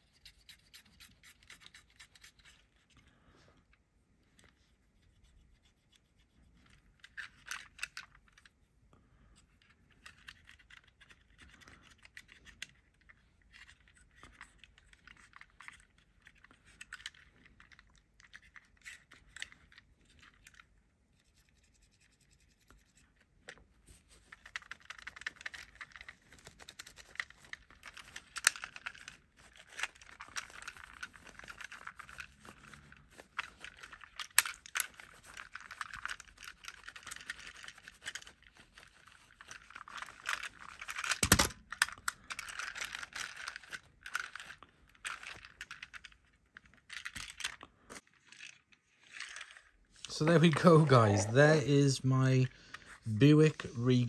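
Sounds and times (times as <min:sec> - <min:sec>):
cotton bud scratching toy car: 0:00.0 - 0:02.7.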